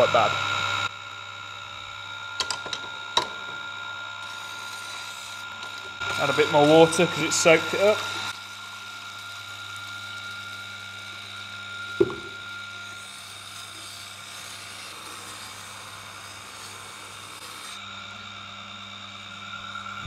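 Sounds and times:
sharpening machine motor hum: 0.0s - 20.0s
chisel grinding on wet stone: 11.4s - 17.8s
sharp knock: 12.0s - 12.3s.

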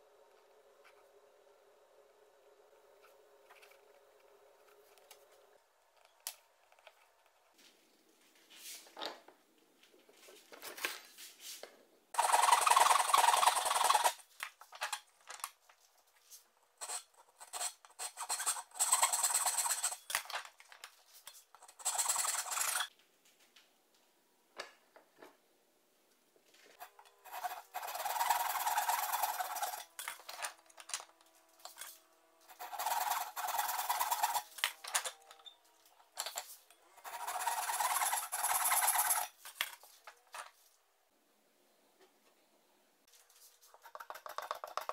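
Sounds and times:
hand plane shaving wood: 32.5s - 34.5s, 37.0s - 39.2s.

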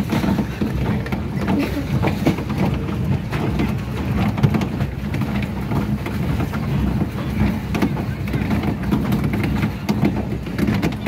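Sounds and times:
paddle wheel churning water: 0.0s - 11.0s.

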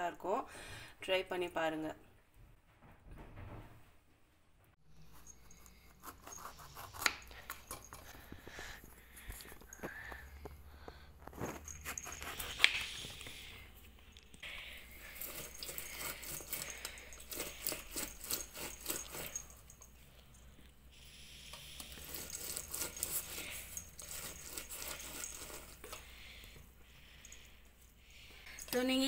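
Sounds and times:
knife cutting oranges: 5.0s - 8.6s, 11.4s - 13.6s, 14.9s - 19.9s, 21.4s - 26.1s
citrus juicer squishing: 14.7s - 19.7s, 21.5s - 26.1s
knife clicks and scrapes: 15.2s - 19.8s.

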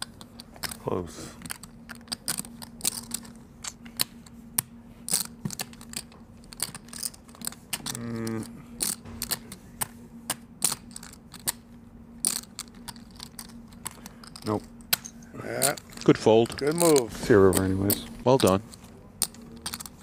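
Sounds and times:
poker chips clicking: 0.0s - 0.8s, 1.4s - 4.3s, 5.1s - 11.6s, 12.2s - 20.0s
faint steady hum: 0.0s - 20.0s
short low vocal sound: 7.8s - 8.8s.

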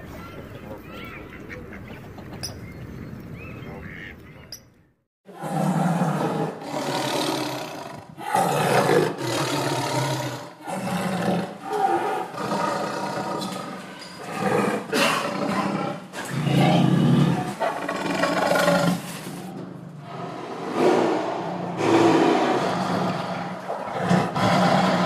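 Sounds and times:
lion roaring: 5.3s - 25.0s.

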